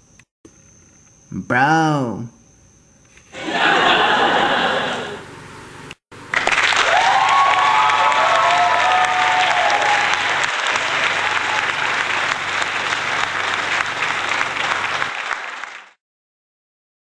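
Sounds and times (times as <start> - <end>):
audience cheering: 3.4 - 5.2, 6.3 - 16.0
audience applause: 6.3 - 16.0.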